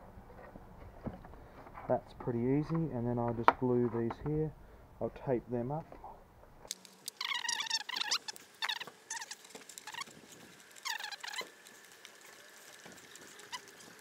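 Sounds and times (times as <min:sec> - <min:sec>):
tape squealing off the roll: 0:07.0 - 0:14.0.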